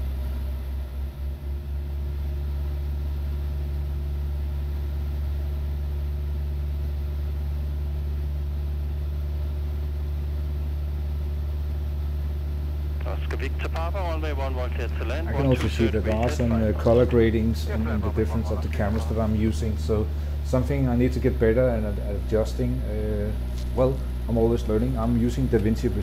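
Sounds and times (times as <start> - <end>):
propeller plane engine drone: 0.0 - 26.0.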